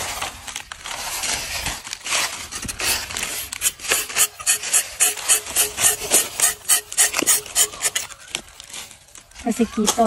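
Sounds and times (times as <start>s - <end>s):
knife scraping tree bark: 0.9s - 8.9s.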